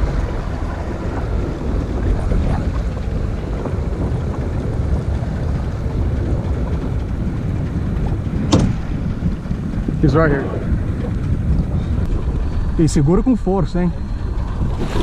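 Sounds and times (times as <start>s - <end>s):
wind buffeting microphone: 0.0s - 15.0s
water lapping: 14.0s - 15.0s.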